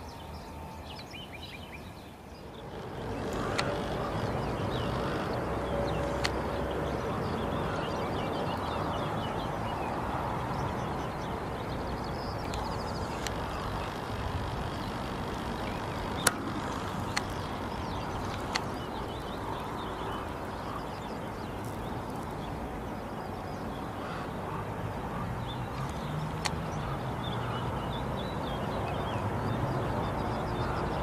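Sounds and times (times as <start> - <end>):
sharp clicks: 3.1 - 4.3, 5.9 - 6.4, 12.4 - 19.4, 25.7 - 26.7.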